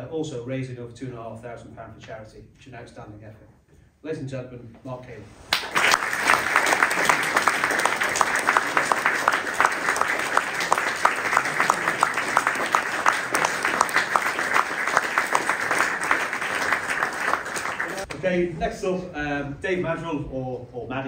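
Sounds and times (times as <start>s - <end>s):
audience applauding: 5.5s - 18.1s
sharp individual claps: 5.5s - 18.2s.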